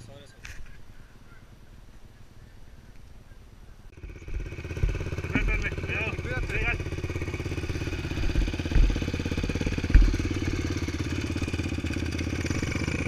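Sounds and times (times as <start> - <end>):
engine putter at low speed: 3.9 - 13.0
low thumps: 4.3 - 10.9.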